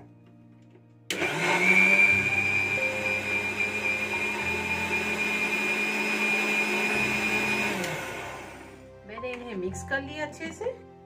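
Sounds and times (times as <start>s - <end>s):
mixer grinder whining: 1.1s - 8.8s.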